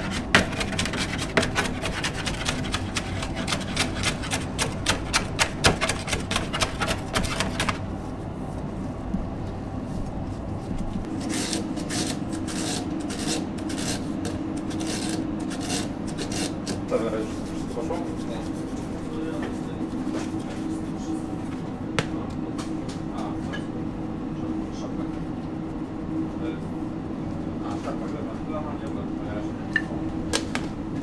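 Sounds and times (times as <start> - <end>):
knife chopping herbs on a board: 0.0 - 7.8
steady low hum: 0.0 - 31.0.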